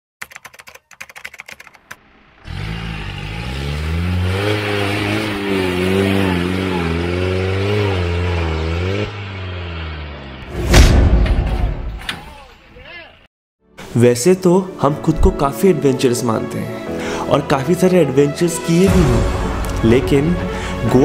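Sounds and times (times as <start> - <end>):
quick run of clicks: 0.2 - 2.0
engine revving hard under load: 2.0 - 11.1.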